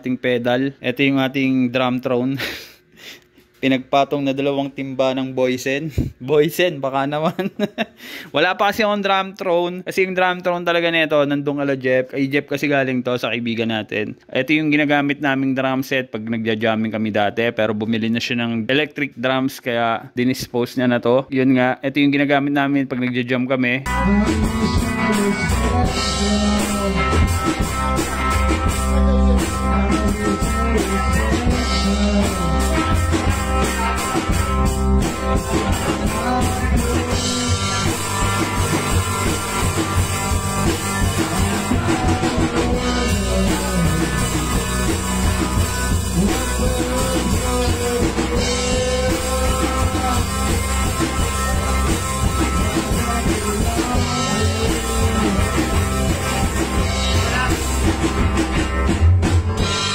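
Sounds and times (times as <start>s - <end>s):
person singing: 23.8s - 58.9s
bass guitar: 23.8s - 59.9s
drum kit: 23.9s - 59.9s
electric guitar: 23.9s - 59.9s.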